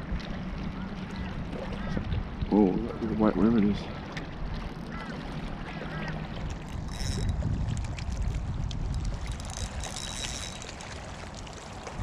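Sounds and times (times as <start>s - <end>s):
wind rumbling on microphone: 0.0s - 3.4s, 4.4s - 12.0s
fishing reel whirring: 6.6s - 7.6s, 8.9s - 11.0s.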